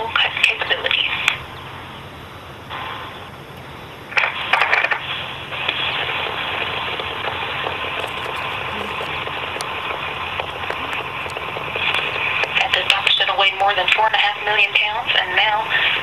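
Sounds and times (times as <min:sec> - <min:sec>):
crackling hiss from television: 0:02.4 - 0:16.0
loud clicks and crackles: 0:03.6 - 0:13.2.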